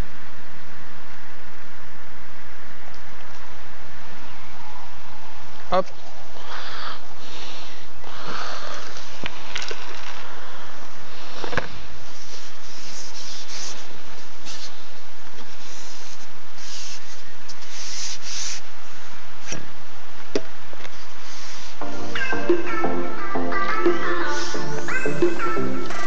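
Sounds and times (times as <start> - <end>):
rustling rubbing noise: 11.2 - 14.8.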